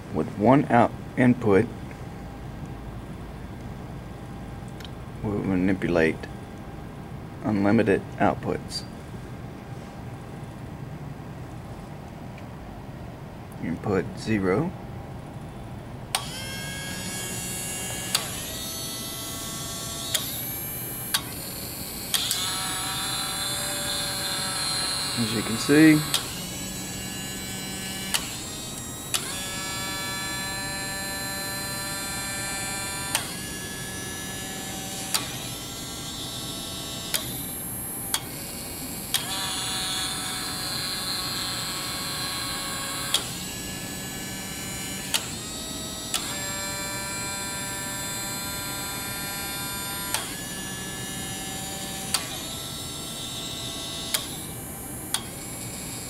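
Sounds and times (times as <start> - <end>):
small gear motors whining: 16.1 - 56.0.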